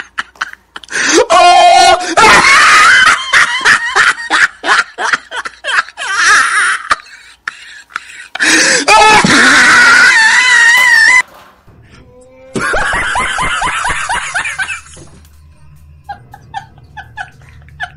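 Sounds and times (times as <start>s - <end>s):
loud wavering wail: 11.8s - 17.9s
person cackling: 12.0s - 17.9s.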